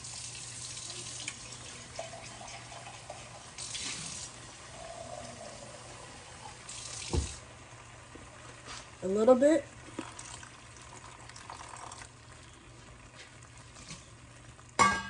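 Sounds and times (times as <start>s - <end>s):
kitchen tap running: 0.0s - 7.5s, 9.8s - 12.3s
thump: 7.1s - 7.4s.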